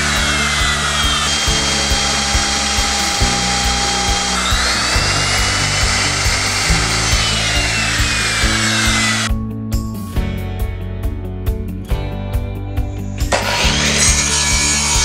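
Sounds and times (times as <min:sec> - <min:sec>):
router cutting wood: 0:00.0 - 0:09.3, 0:13.3 - 0:15.0
background music with steady beat: 0:00.0 - 0:15.0.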